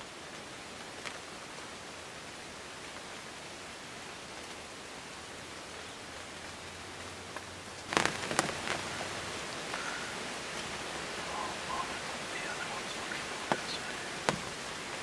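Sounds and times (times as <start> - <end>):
light rain hissing: 0.0 - 15.0
rustling near microphone: 7.8 - 15.0.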